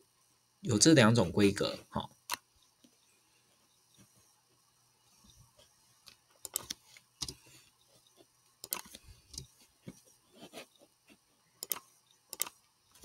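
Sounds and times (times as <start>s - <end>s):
computer keyboard keys clicking: 11.6s - 12.5s.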